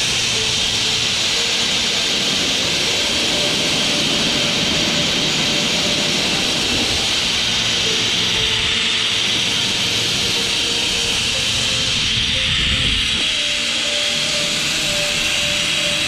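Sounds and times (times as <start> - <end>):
river rushing over rapids: 0.0 - 12.5.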